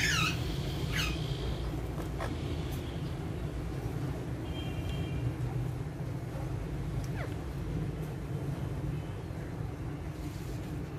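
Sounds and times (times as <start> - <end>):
parrot call: 0.0 - 1.3.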